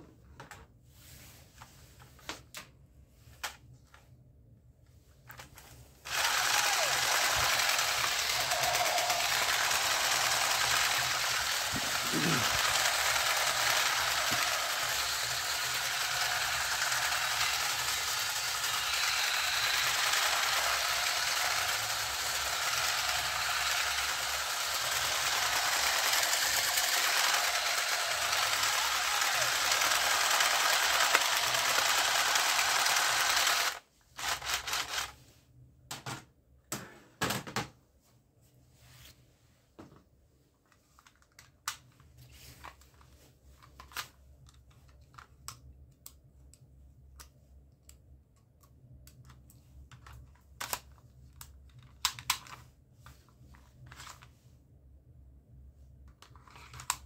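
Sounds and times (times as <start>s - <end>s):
toy machine gun rattle: 6.1s - 35.2s, 56.2s - 57.0s.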